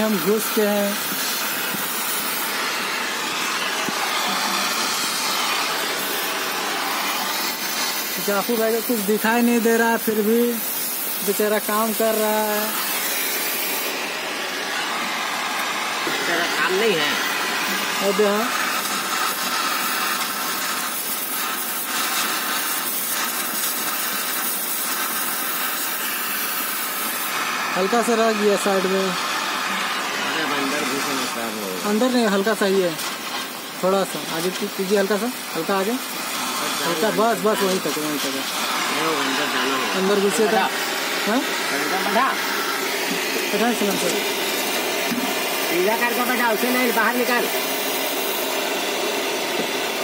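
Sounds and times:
welding torch flame hissing: 0.0s - 50.0s.

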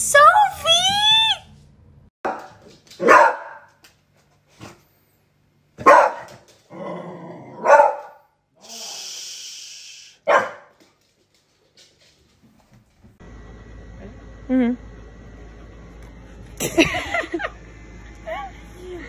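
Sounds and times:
puppy barking: 2.3s - 3.8s, 5.8s - 6.4s, 7.6s - 8.2s, 10.2s - 10.7s.

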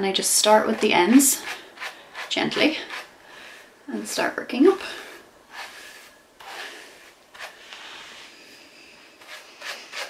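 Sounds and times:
brush rustling through wet hair: 5.5s - 10.0s.

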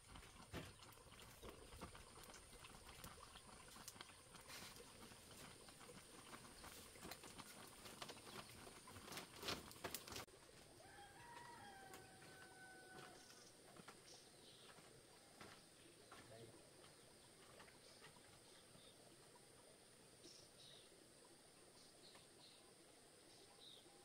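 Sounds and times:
distant rooster crowing: 10.8s - 13.4s.

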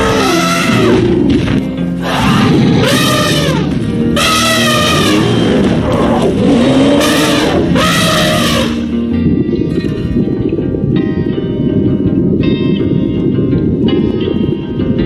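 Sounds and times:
elephant trumpeting: 0.0s - 1.3s, 2.0s - 8.9s
guitar music: 0.0s - 15.0s.

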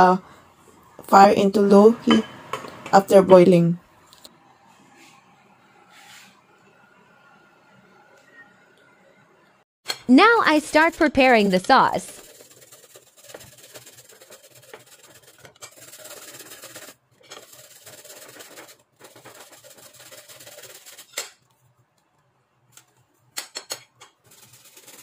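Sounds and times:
ginger grated on a grater: 10.4s - 21.2s, 24.2s - 25.0s.

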